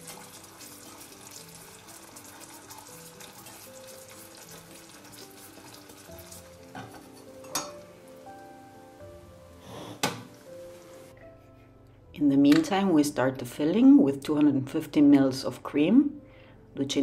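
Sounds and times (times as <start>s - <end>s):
sugar syrup sizzling: 0.0s - 11.2s
soft background music: 0.0s - 17.0s.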